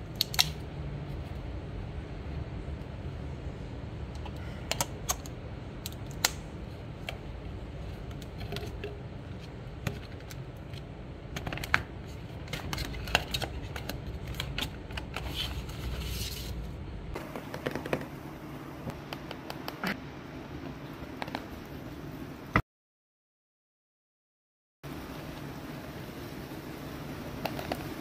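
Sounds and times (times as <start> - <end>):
papery scrape: 15.1 - 16.7.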